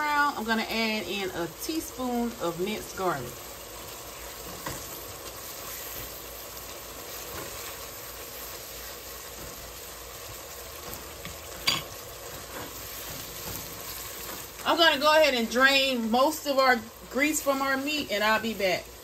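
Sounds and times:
meat sizzling in a pot: 0.0 - 19.0
spatula stirring and scraping: 3.4 - 14.7.

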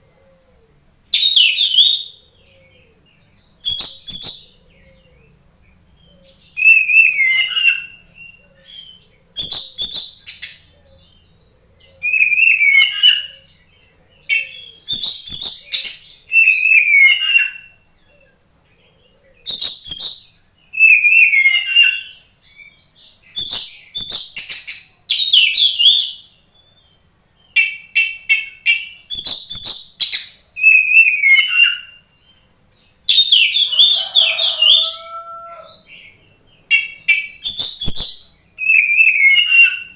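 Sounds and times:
bird singing whistles and chattering: 3.6 - 4.6, 12.0 - 13.4, 14.3 - 17.7, 19.4 - 22.1, 23.3 - 26.2, 27.5 - 32.0, 36.7 - 39.9.

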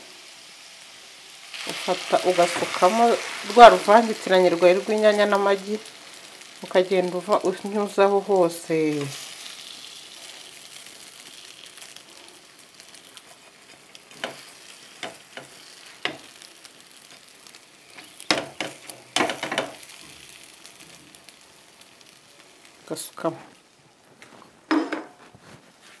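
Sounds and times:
omelette sizzling in a frying pan: 0.0 - 24.8
spatula scraping and tapping pan: 13.2 - 16.4, 17.9 - 20.0.

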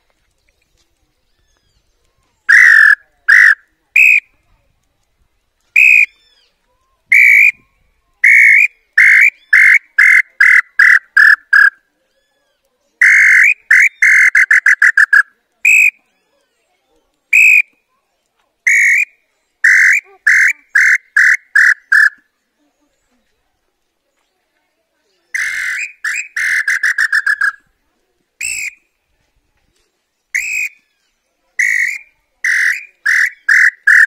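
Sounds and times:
bird-call whistle: 2.5 - 4.3, 5.8 - 6.5, 7.1 - 11.7, 13.0 - 16.0, 17.3 - 17.8, 18.7 - 22.2, 25.4 - 27.6, 28.4 - 28.9, 30.3 - 34.0.

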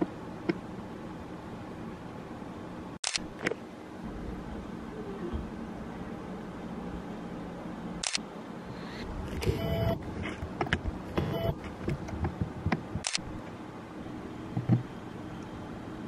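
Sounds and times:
steady low hum: 0.0 - 16.0
short mechanical buzzes: 8.8 - 10.1, 11.1 - 11.6
sharp clicks: 11.9 - 13.2.

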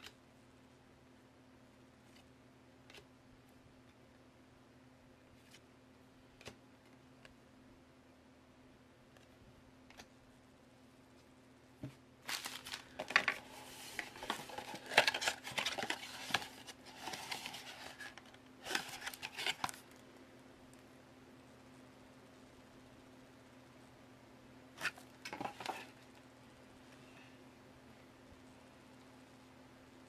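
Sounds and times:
plastic wrap crinkling on cardboard box: 12.2 - 19.8.

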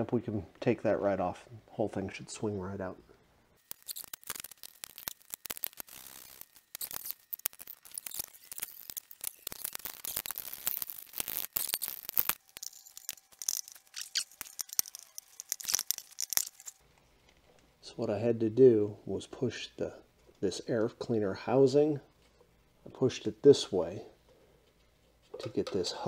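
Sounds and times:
clicks scrapes and rustling: 3.6 - 17.7.

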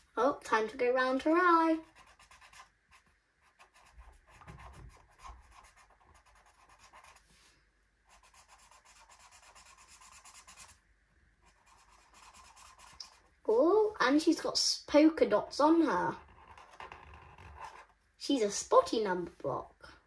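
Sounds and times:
marker scratching on paper: 1.8 - 7.3, 8.1 - 10.8, 11.4 - 13.3, 16.0 - 18.0.

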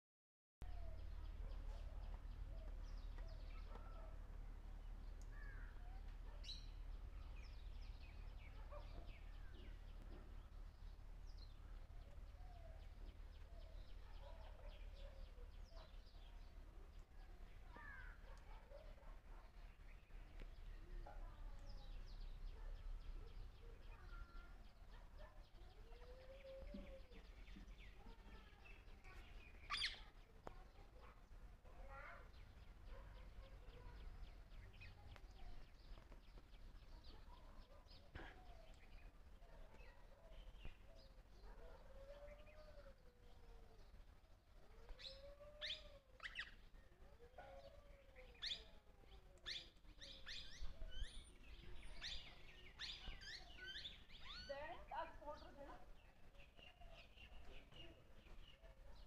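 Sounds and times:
birds chirping: 0.7 - 44.3, 45.0 - 59.0.

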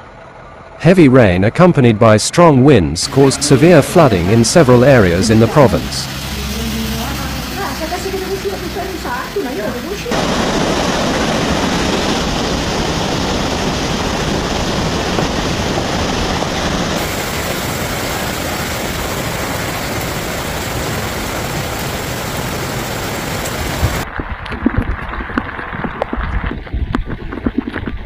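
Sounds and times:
water rushing loudly: 3.0 - 25.3.

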